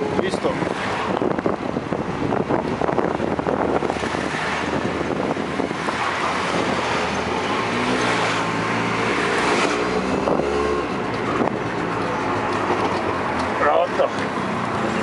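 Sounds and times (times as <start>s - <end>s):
wind buffeting microphone: 0.0s - 13.6s.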